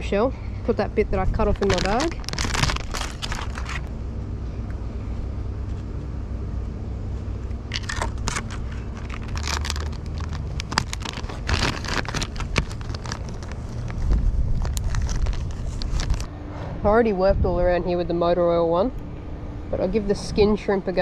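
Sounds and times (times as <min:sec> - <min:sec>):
low rumble: 0:00.0 - 0:21.0
plastic packaging crinkling: 0:01.3 - 0:03.9, 0:07.7 - 0:16.3.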